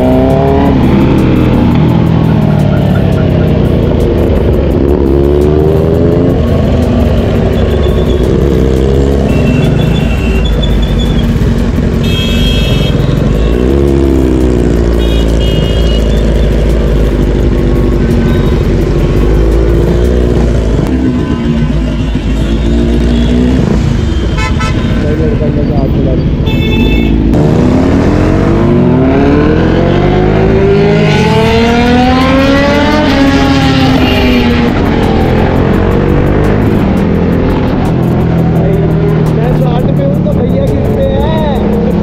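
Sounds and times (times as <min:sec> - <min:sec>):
motorcycle engine revving: 0:00.0 - 0:42.0
vehicle horns honking: 0:09.2 - 0:11.1, 0:12.0 - 0:13.8, 0:14.9 - 0:16.5, 0:20.9 - 0:25.5, 0:26.3 - 0:27.4, 0:33.7 - 0:34.7.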